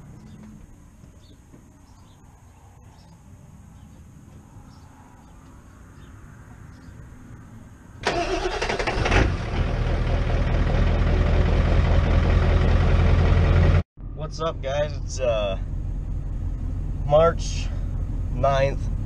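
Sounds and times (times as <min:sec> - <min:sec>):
diesel engine cranking and idling: 0:08.0 - 0:19.0.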